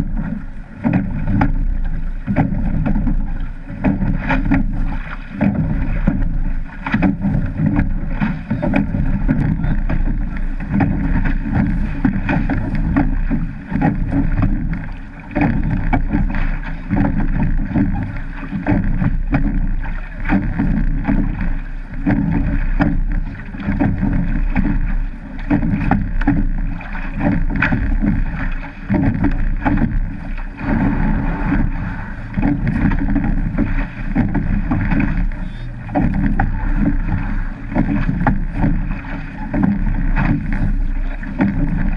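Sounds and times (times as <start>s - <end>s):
water rushing along boat hull: 0.0s - 41.9s
wind buffeting camera: 0.0s - 41.9s.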